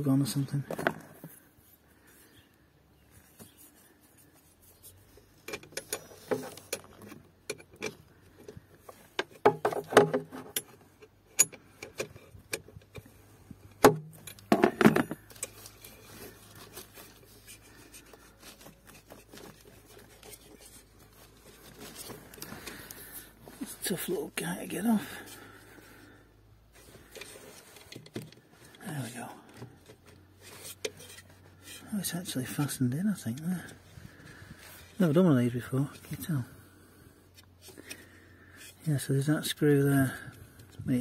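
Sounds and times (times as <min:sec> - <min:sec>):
metal wrench scraping fastener: 0:14.2 - 0:22.1, 0:30.4 - 0:31.9.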